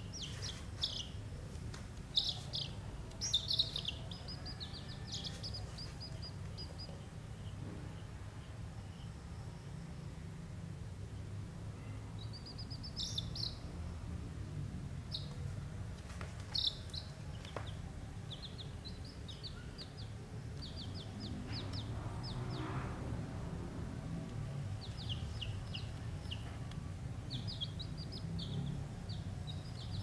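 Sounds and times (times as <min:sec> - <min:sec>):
chicks peeping: 0:00.0 - 0:08.1, 0:12.2 - 0:13.8, 0:15.0 - 0:23.3, 0:24.5 - 0:30.0.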